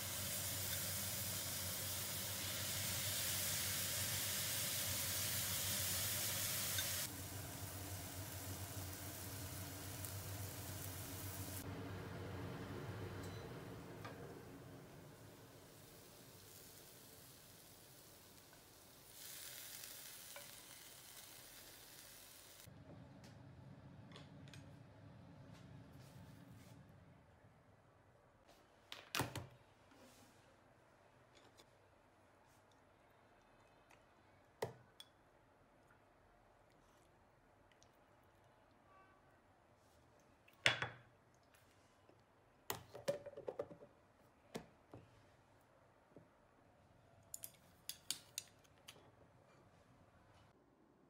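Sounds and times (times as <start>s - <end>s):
food sizzling in a frying pan: 0.0s - 11.7s, 14.4s - 22.7s.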